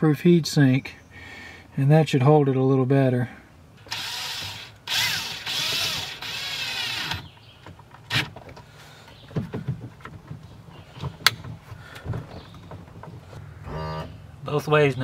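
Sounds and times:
cordless drill whirring: 0:03.8 - 0:07.3
light clicks and knocks: 0:07.2 - 0:13.4.

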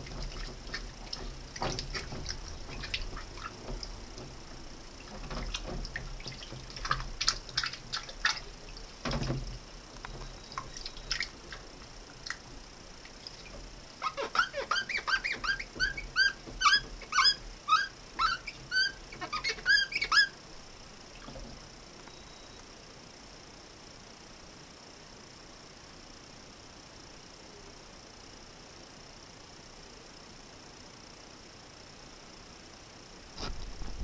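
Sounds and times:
water splashing: 0:00.0 - 0:09.6, 0:10.5 - 0:17.4
fingers squeaking on plastic blades: 0:13.4 - 0:20.4.

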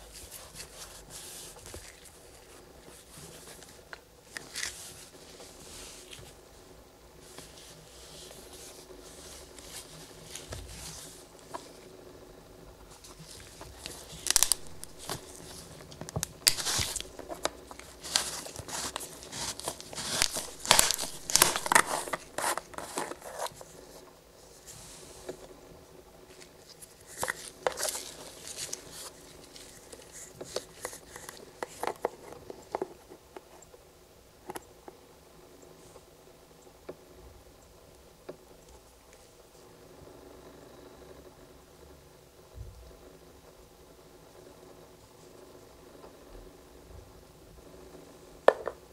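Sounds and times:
plastic crackling and crinkling: 0:00.1 - 0:06.4, 0:12.9 - 0:24.1, 0:26.3 - 0:33.6.

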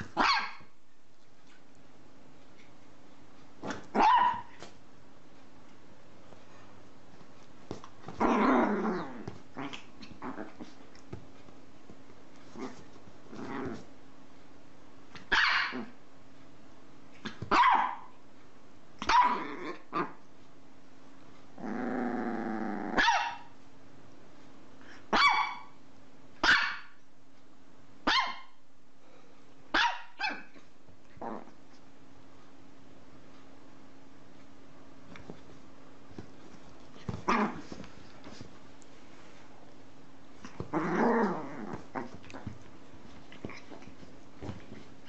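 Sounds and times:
small dog yapping: 0:00.0 - 0:00.7, 0:03.6 - 0:04.7, 0:15.2 - 0:16.0, 0:17.2 - 0:18.1, 0:19.0 - 0:20.1, 0:22.9 - 0:23.5, 0:25.1 - 0:25.8, 0:26.4 - 0:26.9, 0:28.0 - 0:28.6, 0:29.7 - 0:30.6
dog growling: 0:08.1 - 0:10.8, 0:12.5 - 0:13.9, 0:21.6 - 0:23.0, 0:31.2 - 0:31.6, 0:37.1 - 0:37.8, 0:40.4 - 0:42.6.

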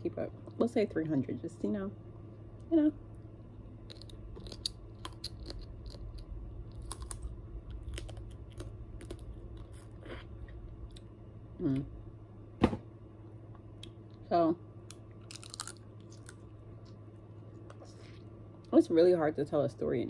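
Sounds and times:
crab shell crackling: 0:03.5 - 0:11.1, 0:14.8 - 0:16.5
chewing and mouth clicks: 0:03.8 - 0:11.1, 0:14.9 - 0:17.0.

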